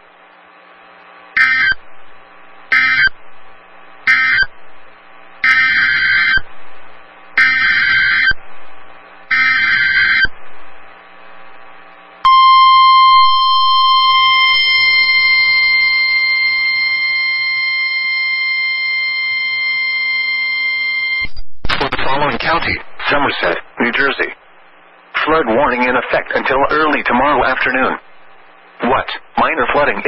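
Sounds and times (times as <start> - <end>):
steady alert tone: 12.3 - 16.8.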